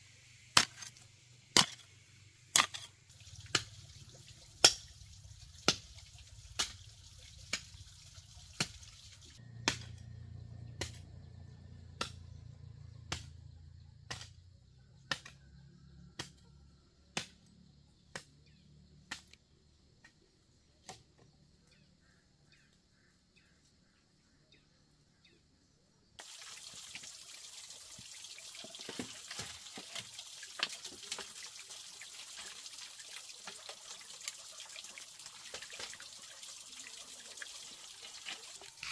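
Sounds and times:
hoe chopping into soil: 0:00.6 - 0:01.0, 0:01.6 - 0:01.8, 0:02.6 - 0:02.9.

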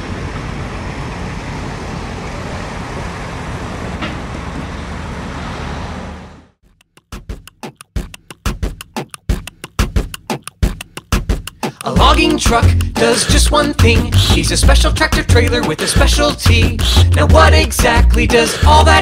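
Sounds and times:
road noise: 0:00.0 - 0:06.6
truck engine drone: 0:00.0 - 0:06.8
music with thumping beat: 0:06.6 - 0:19.0.

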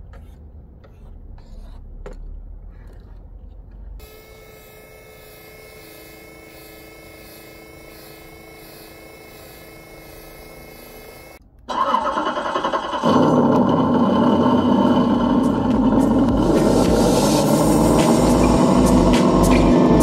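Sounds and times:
engine cranking and starting: 0:11.7 - 0:19.9.

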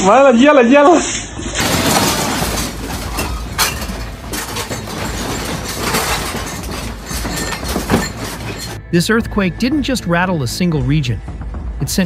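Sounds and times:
household objects rattling and clinking: 0:01.6 - 0:08.9.

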